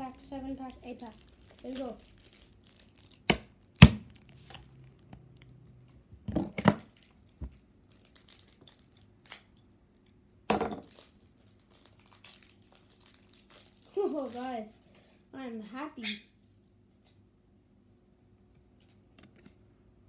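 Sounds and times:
foil wrapper crinkling and tearing: 0.6 - 5.0, 6.8 - 9.6, 10.8 - 14.7.

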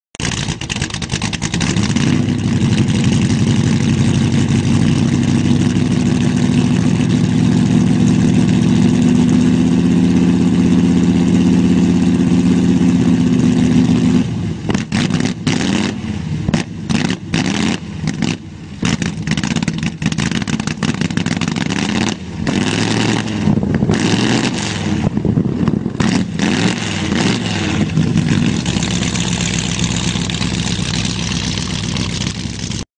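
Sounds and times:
engine revving at high revs: 1.5 - 30.4.

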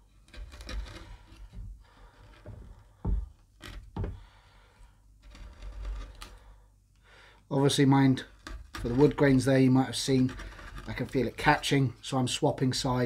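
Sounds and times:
knife scraping wood: 0.0 - 6.6, 8.2 - 11.5
sharp clicks and knocks: 8.3 - 9.4.

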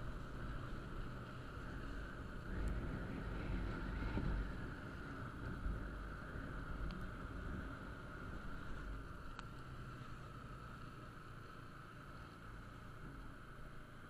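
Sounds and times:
wind rumbling on microphone: 0.0 - 10.2
motorcycle road noise: 0.0 - 14.0.

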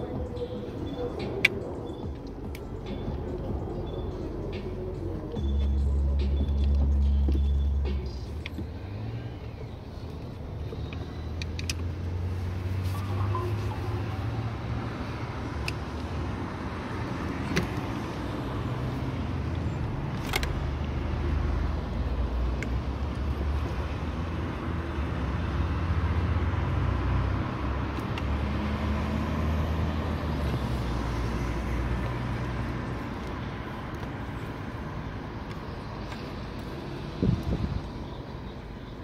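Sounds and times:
vehicle engine running: 0.0 - 38.8
sharp clicks of parts handled: 10.1 - 11.9, 15.6 - 16.1, 20.1 - 21.0, 22.4 - 23.4.

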